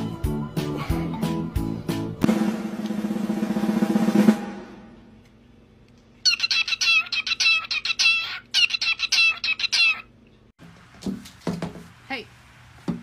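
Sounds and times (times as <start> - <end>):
drum roll: 2.2 - 5.2
cockatiel chirping and whistling: 6.2 - 10.1.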